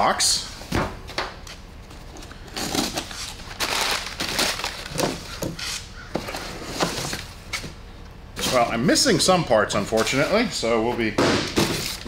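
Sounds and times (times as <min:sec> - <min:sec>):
cardboard and tape tearing: 0:02.6 - 0:05.8
packing paper crinkling: 0:02.6 - 0:05.8.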